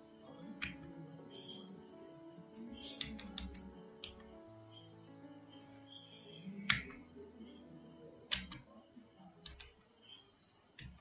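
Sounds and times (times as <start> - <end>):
soft background music: 0.0 - 11.0
keyboard key clicks: 6.7 - 7.0, 8.3 - 8.6, 9.4 - 9.8.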